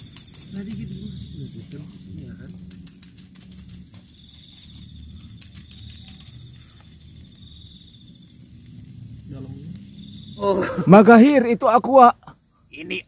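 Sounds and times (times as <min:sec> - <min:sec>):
wood fire crackling and popping: 0:00.0 - 0:12.2
insect trilling: 0:00.0 - 0:13.0
low rumble: 0:06.4 - 0:10.4.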